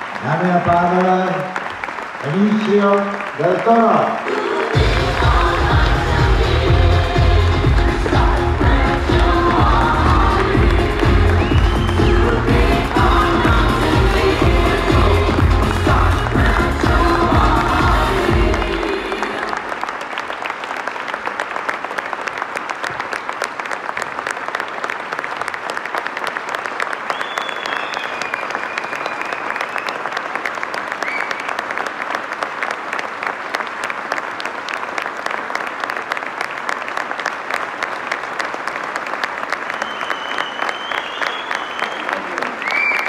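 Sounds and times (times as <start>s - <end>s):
large audience applauding: 0.0s - 43.0s.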